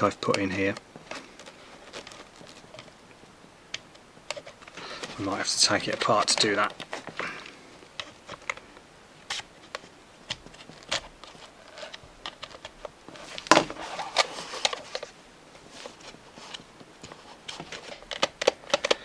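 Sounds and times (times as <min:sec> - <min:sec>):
screwdriver scraping hard plastic: 0:03.7 - 0:08.7, 0:09.3 - 0:15.1, 0:15.9 - 0:19.0.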